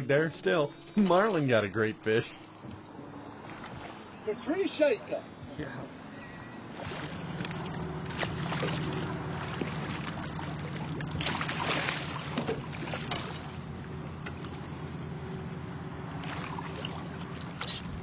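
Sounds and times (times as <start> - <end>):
boat motor running: 0.0 - 18.0
fish thrashing and splashing: 6.7 - 14.7, 16.1 - 18.0.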